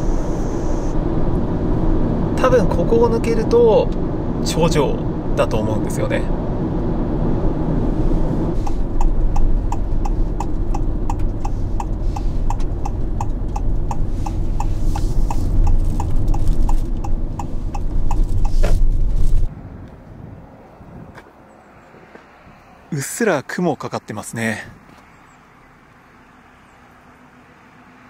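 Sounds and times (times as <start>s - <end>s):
road and engine rumble: 0.0s - 28.0s
turn signal ticking: 8.6s - 18.9s.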